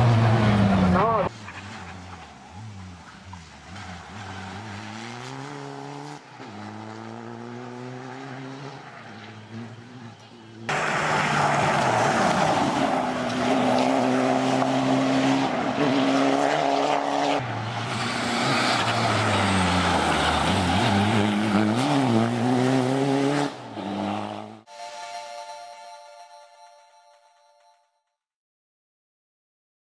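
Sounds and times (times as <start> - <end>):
rally car engine revving past: 1.6 - 24.6
held electronic tones: 24.7 - 27.9.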